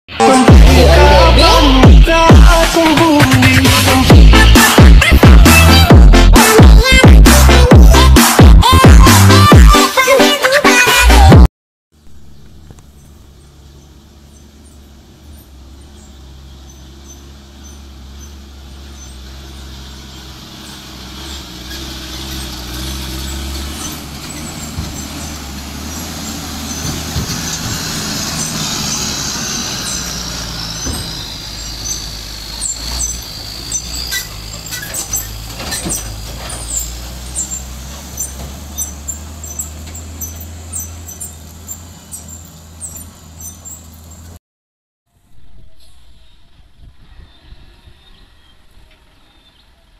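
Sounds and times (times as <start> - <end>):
dump truck diesel engine: 0.1 - 44.4
high brake squeal: 12.2 - 44.4, 45.5 - 49.7.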